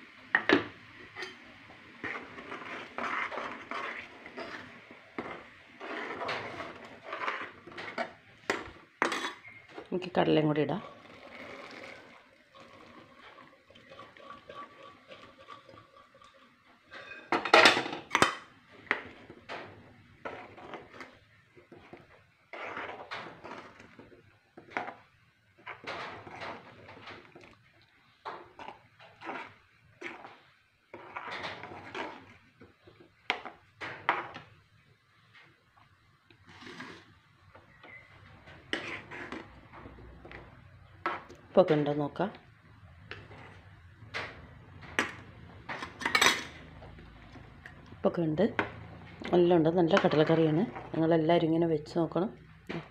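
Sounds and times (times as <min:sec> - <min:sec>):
spoon stirring and scraping pan: 0:00.1 - 0:52.9
metal pot and spoon clanking: 0:00.4 - 0:09.6, 0:12.6 - 0:21.0, 0:44.9 - 0:46.9.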